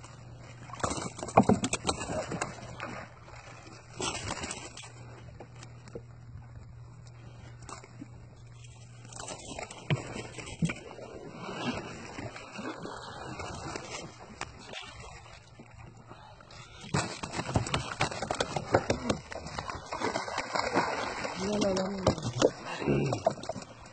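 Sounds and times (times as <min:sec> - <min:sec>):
water splashing: 0:08.6 - 0:23.9
net and fish knocking: 0:16.9 - 0:23.6.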